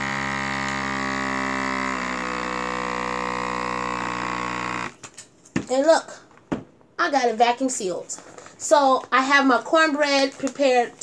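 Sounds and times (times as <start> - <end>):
handheld vacuum sealer running: 0.0 - 5.1.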